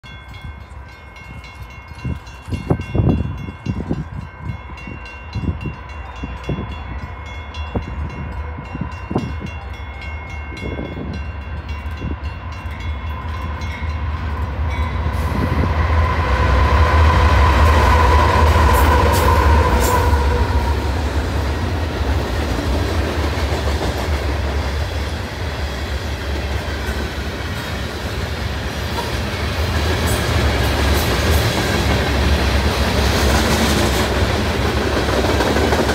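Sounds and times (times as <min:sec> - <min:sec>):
diesel locomotive engine rumble: 0:00.1 - 0:35.9.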